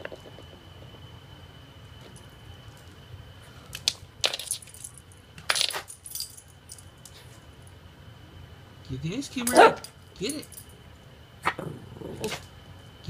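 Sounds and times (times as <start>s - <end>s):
dog collar tags jingling: 5.6s - 6.9s, 9.4s - 10.8s.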